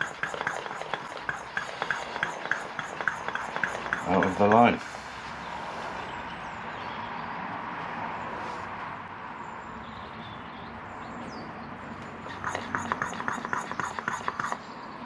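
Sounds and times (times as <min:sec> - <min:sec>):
faint high bird chirps: 0:12.2 - 0:15.0.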